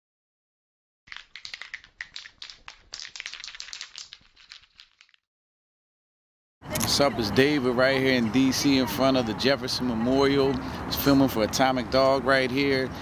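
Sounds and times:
rapid clicks and crackles: 1.1 - 5.2.

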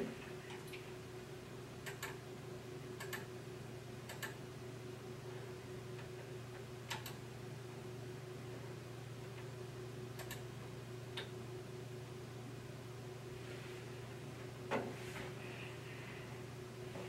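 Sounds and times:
low electrical hum: 0.0 - 17.0
computer mouse clicking: 1.8 - 2.2, 3.0 - 3.3, 4.1 - 4.4, 6.9 - 7.2, 10.2 - 10.4.

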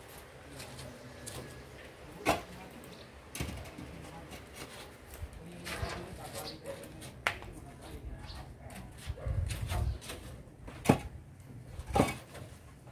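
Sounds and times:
concrete blocks knocking: 10.7 - 12.5.

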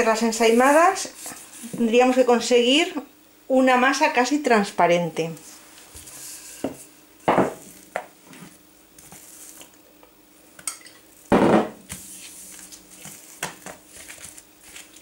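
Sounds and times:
hands handling dough: 0.0 - 2.2, 5.9 - 9.8, 10.6 - 15.0
faint steady hum: 0.0 - 15.0
loud knocks on counter: 7.3 - 8.1, 11.3 - 11.8.

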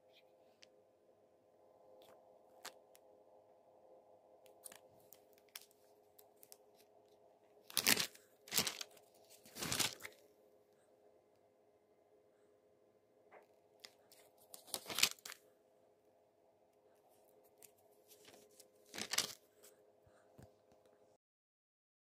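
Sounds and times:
faint steady hum: 0.0 - 21.2
loud rustling: 7.7 - 10.2.

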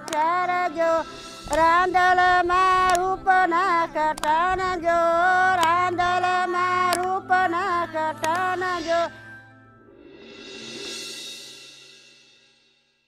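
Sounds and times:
person singing: 0.0 - 9.3
percussion taps: 1.4 - 3.3, 4.1 - 4.8, 8.2 - 8.6.

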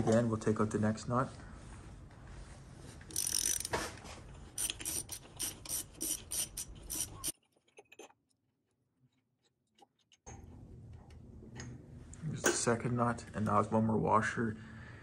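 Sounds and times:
ratchet wrench clicking: 3.1 - 3.8, 4.6 - 7.3.

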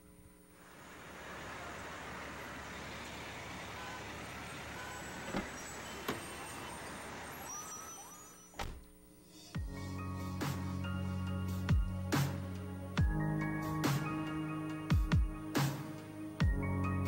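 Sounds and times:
car running with rushing noise: 0.6 - 7.5.

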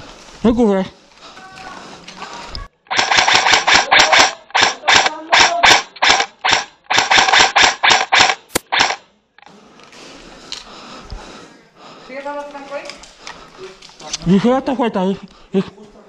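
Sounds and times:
airsoft rifle firing: 2.9 - 9.0.

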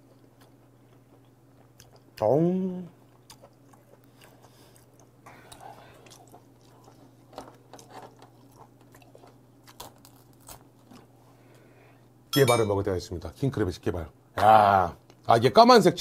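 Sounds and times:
steady low hum: 0.0 - 16.0
chewing and mouth sounds: 0.1 - 2.3, 3.0 - 11.1.

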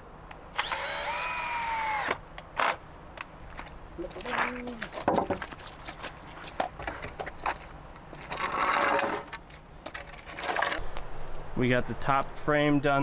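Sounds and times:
wooden boards knocking and clattering: 4.9 - 5.5.

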